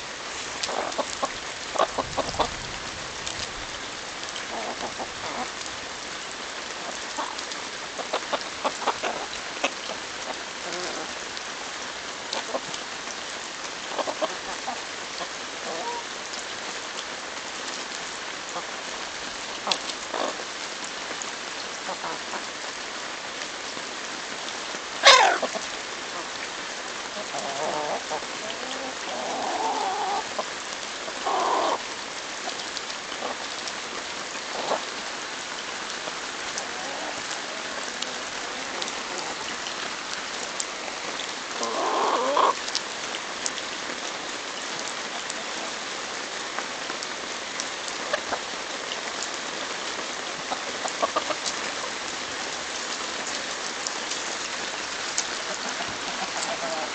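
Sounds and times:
hens clucking and squawking: 0.6 - 2.6, 6.8 - 11.2, 13.9 - 16.1, 19.6 - 20.4, 25.0 - 26.3, 27.1 - 31.8, 34.5 - 35.0, 36.0 - 39.6, 41.5 - 42.6, 50.2 - 52.1, 55.2 - 56.9.

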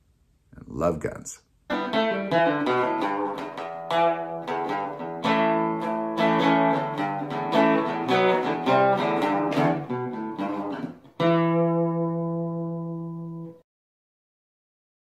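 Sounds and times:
guitar chords strummed: 1.7 - 13.6.

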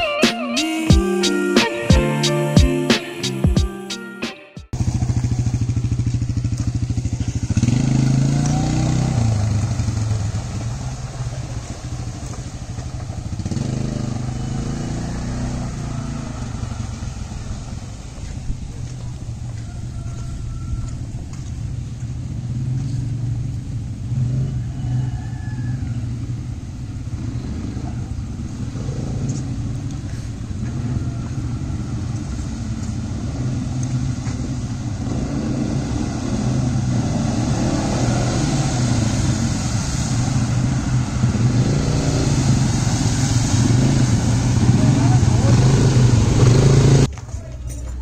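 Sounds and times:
quad bike engine droning: 4.7 - 48.0.

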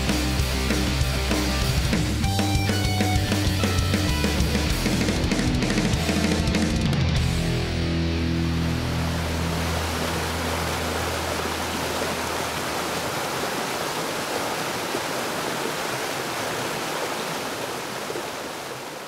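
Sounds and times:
rushing whitewater rapids: 8.6 - 19.0.

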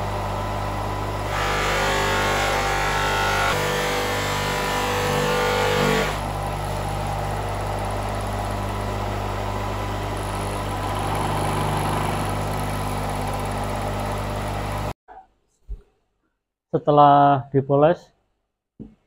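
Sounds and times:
electric buffing motor humming: 0.0 - 14.9.

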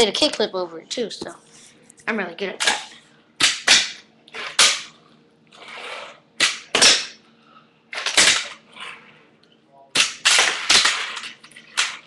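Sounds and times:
handboard scraping: 5.6 - 6.2.

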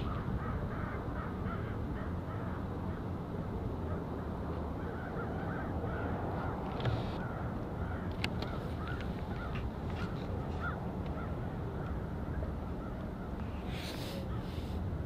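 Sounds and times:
crows cawing: 0.0 - 3.1, 4.8 - 12.1
distant jet airliner rumble: 0.0 - 15.0.

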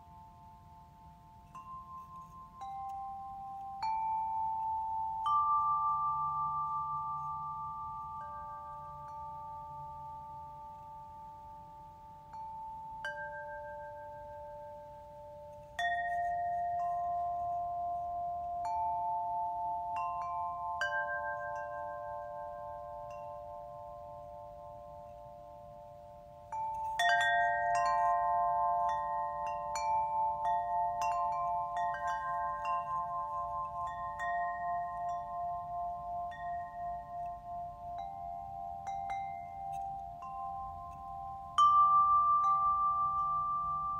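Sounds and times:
small chime bells ringing: 0.0 - 43.9.

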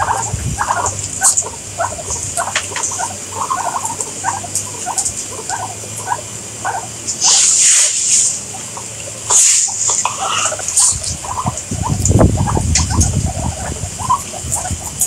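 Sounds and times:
guinea pigs squeaking: 0.0 - 15.0
hissing noise: 7.0 - 15.0.

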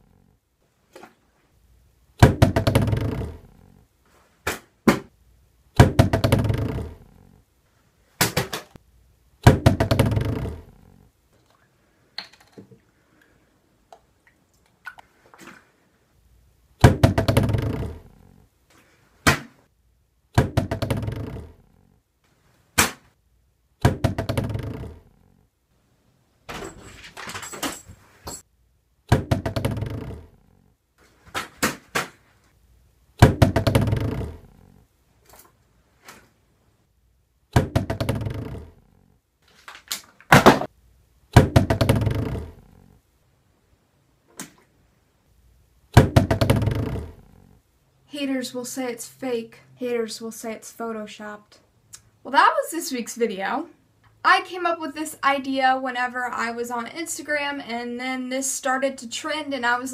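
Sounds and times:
plastic bottle thunking on desk: 40.3 - 40.7.

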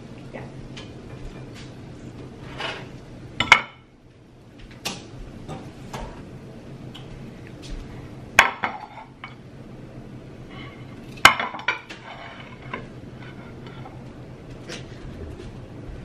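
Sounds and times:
plates clattering on stone: 8.4 - 9.4, 11.2 - 13.9.

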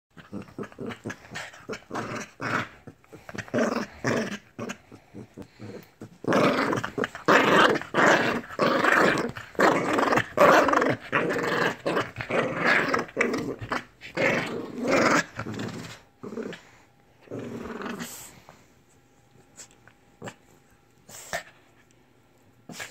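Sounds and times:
dog growling: 0.2 - 18.3.

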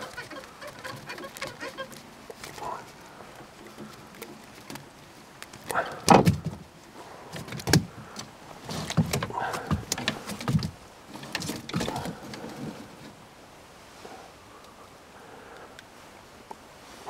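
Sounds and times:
fishing rods knocking canoe hull: 8.8 - 10.8.

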